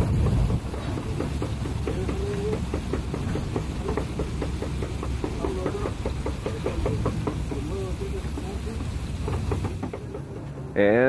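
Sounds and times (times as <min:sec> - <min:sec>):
steady low rumble: 0:00.0 - 0:04.2.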